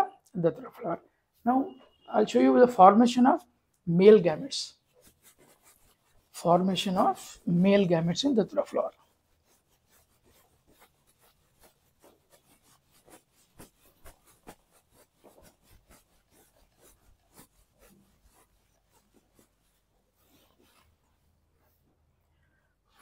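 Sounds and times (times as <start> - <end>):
duster rubbing whiteboard: 4.3 - 21.9.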